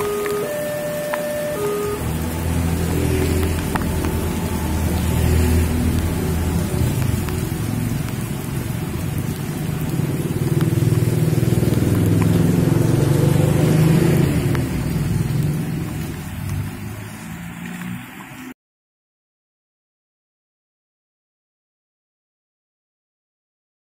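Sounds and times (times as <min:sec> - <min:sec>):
car driving past on wet road: 0:00.0 - 0:18.6
steady rain: 0:00.0 - 0:18.6.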